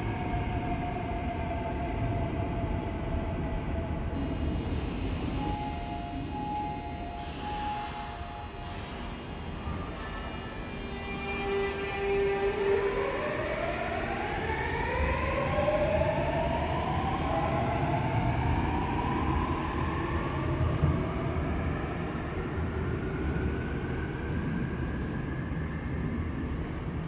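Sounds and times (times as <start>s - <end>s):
train traction motor whine: 0.0s - 20.2s.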